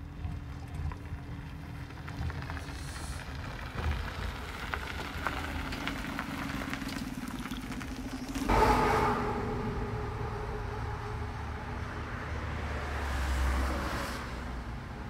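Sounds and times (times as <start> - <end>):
wheels clicking on rails: 0.0 - 8.5
electric train humming: 8.5 - 13.6.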